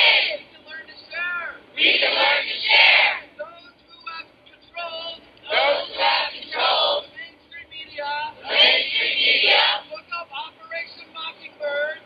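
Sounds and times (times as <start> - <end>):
crowd repeating in unison: 0.0 - 0.4, 1.8 - 3.2, 5.5 - 7.0, 8.4 - 9.9.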